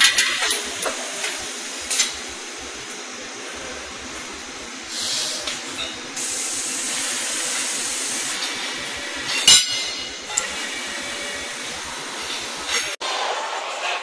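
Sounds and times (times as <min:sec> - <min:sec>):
steady machine hum: 0:00.0 - 0:13.0
compressed air hissing: 0:04.8 - 0:09.5
sharp metal clank: 0:09.3 - 0:10.4.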